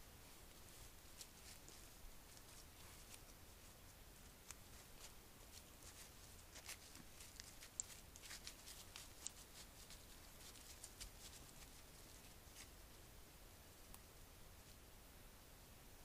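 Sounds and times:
deer stepping on dry leaves: 0.5s - 12.8s.

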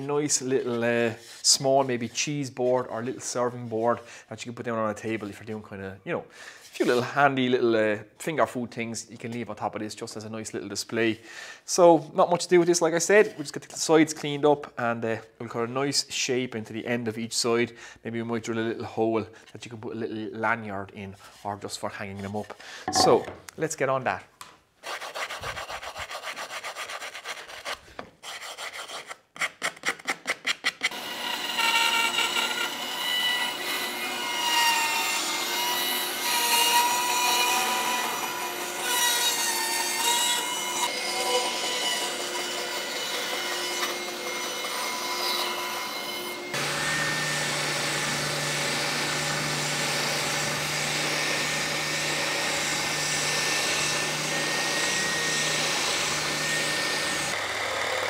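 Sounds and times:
hand tool scraping wood: 21.1s - 23.2s, 24.8s - 31.0s, 46.5s - 57.4s
bandsaw cutting wood: 30.9s - 58.0s
spindle sander humming: 43.6s - 58.0s.

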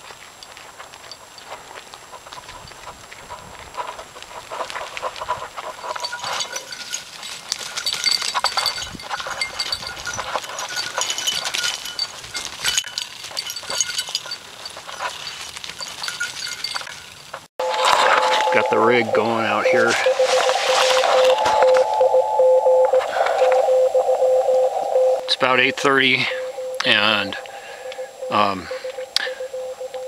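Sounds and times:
goat hooves clattering on rock: 0.0s - 17.5s
collar bells jingling: 5.4s - 20.0s, 25.3s - 30.0s.

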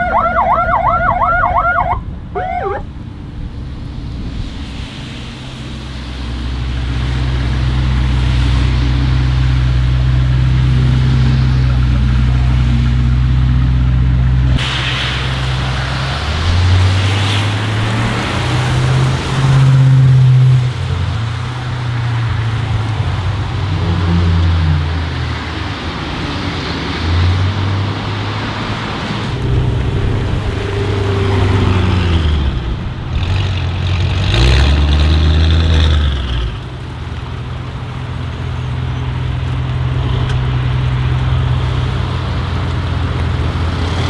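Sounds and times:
car exhaust drone: 29.1s - 33.8s.

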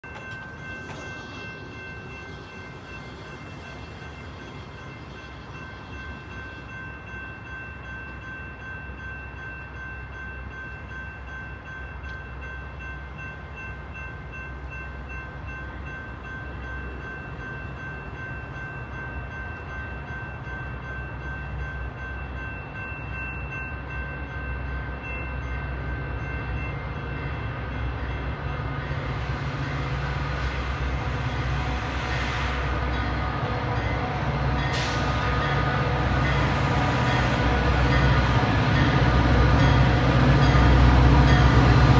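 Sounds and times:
locomotive engine rumble: 26.9s - 41.9s.

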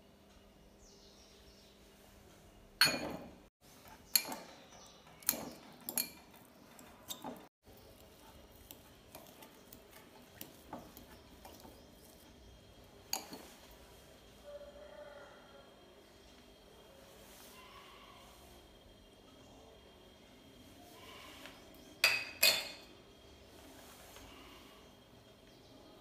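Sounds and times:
fork scraping glass bowl: 5.2s - 12.2s.

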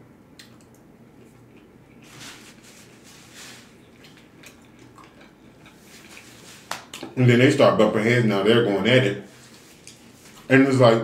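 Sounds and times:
person chewing food: 0.4s - 7.1s, 9.5s - 10.5s.

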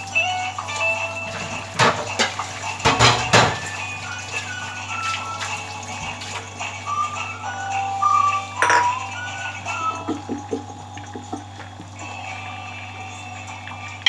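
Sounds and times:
background music: 0.0s - 14.0s
cookware clinking: 1.7s - 3.7s, 8.6s - 9.1s.

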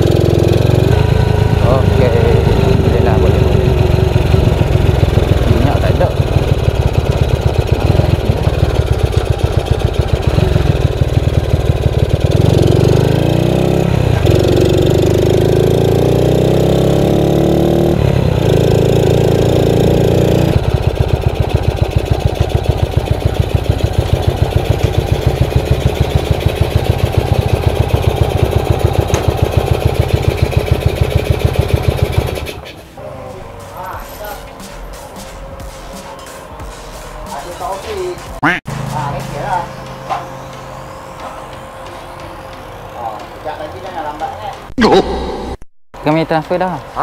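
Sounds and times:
motorcycle engine revving: 0.0s - 34.7s.

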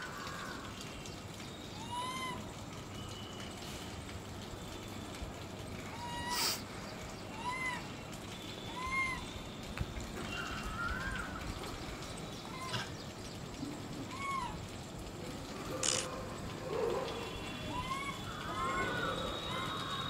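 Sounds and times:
infant monkey calling: 1.8s - 2.5s, 5.9s - 6.6s, 7.3s - 7.9s, 8.7s - 9.3s, 12.4s - 12.9s, 14.1s - 14.6s, 17.1s - 20.0s.

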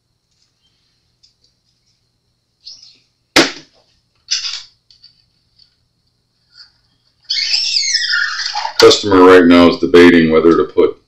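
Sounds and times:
sharp knock: 3.4s - 3.7s.

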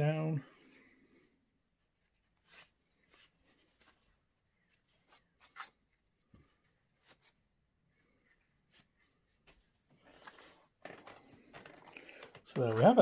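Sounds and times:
tissue paper rubbing: 2.0s - 5.8s.

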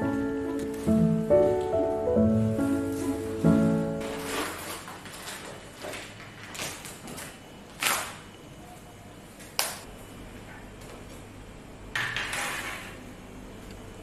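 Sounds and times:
handling noises: 2.6s - 8.0s.

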